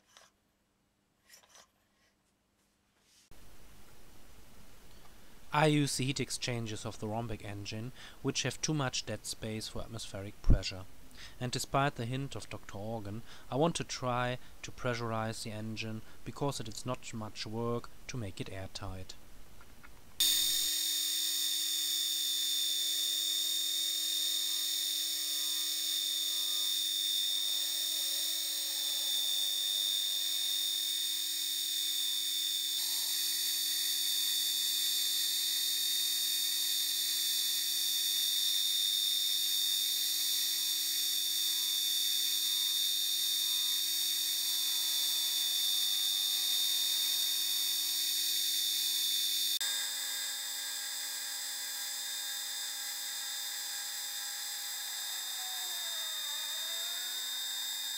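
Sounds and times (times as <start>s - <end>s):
milling machine whine: 20.2s - 57.9s.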